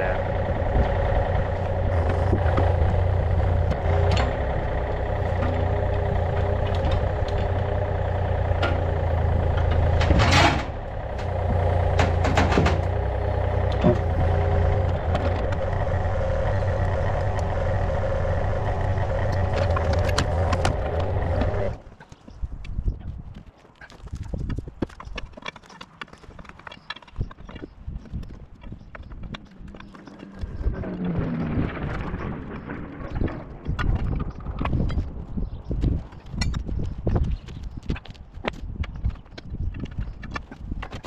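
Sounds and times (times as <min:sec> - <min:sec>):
excavator diesel engine running: 0:00.0 - 0:21.9, 0:29.3 - 0:35.1.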